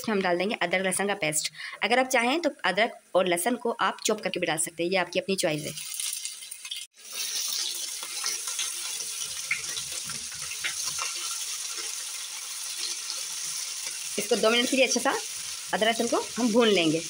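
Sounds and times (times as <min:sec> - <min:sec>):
paste sizzling in hot oil: 0:05.5 - 0:17.0.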